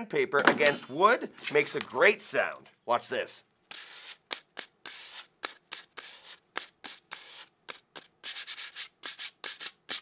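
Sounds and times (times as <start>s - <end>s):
sandpaper scraping on wood: 3.7s - 10.0s.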